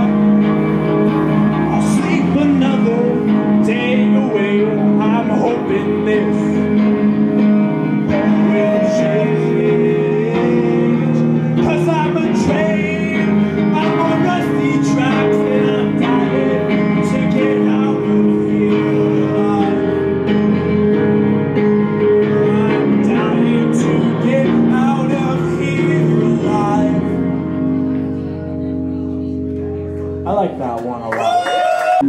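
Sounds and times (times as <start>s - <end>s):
guitar chords: 0.0s - 31.0s
man singing: 1.6s - 20.7s, 22.1s - 28.4s.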